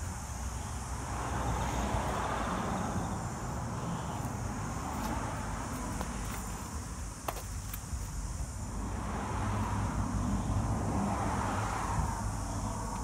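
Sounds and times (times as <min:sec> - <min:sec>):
low traffic rumble: 0:00.0 - 0:13.0
vehicle passing by: 0:00.5 - 0:06.4, 0:08.7 - 0:13.0.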